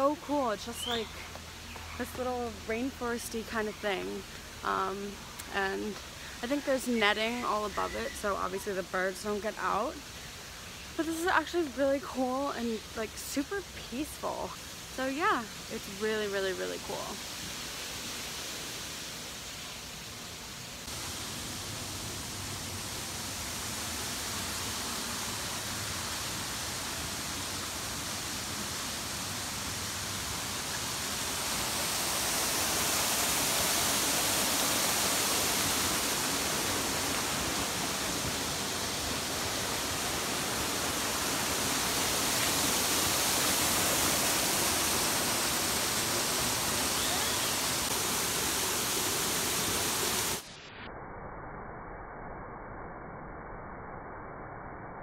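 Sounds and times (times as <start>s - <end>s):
waterfall rushing: 20.8s - 50.4s.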